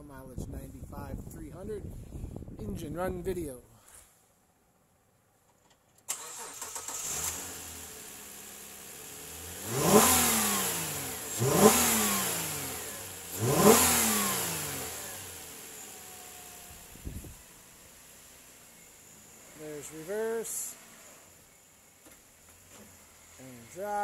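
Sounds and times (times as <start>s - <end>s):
car engine idling and revving: 6.1s - 24.0s.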